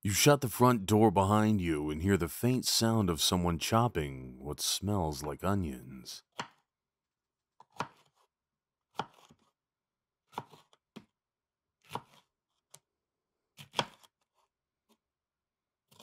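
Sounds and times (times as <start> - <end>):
knife chopping onions: 7.6 - 8.3, 8.9 - 9.5, 10.3 - 11.0, 11.8 - 12.3, 13.6 - 14.1.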